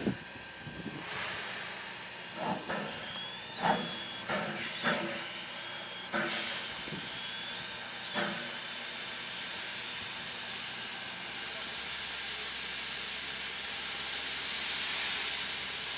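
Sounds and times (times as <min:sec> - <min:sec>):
high-pitched squeals: 0:00.0 - 0:11.7
steam hissing: 0:00.0 - 0:15.9.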